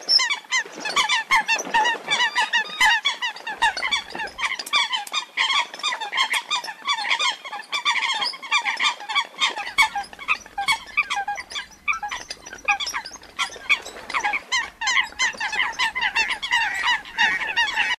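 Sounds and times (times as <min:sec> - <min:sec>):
coot distress calls: 0:15.5 - 0:18.0.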